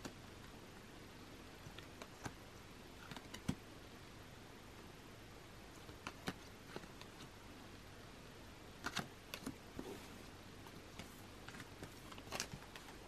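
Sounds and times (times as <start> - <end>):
photo cards shuffled by hand: 10.9 - 13.0.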